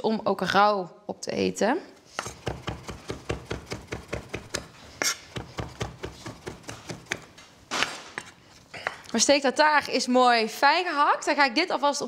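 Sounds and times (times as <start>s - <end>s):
knife chopping on wooden board: 2.2s - 8.4s.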